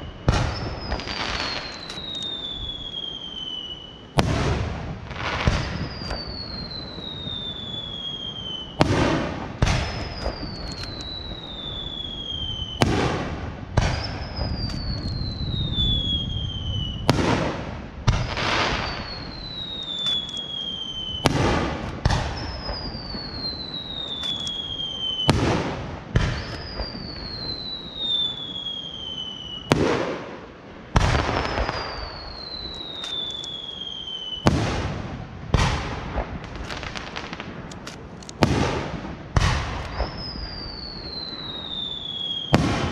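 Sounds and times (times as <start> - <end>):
descending firework whistle: 0.0 - 30.3, 31.0 - 35.0, 38.4 - 42.9
firework shells bursting: 18.1 - 20.6, 21.2 - 27.0, 31.0 - 33.7.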